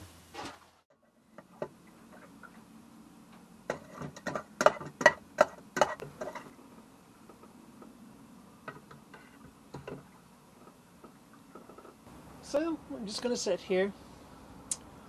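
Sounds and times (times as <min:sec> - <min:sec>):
spoon scraping and knocking on pot: 0:03.7 - 0:06.6.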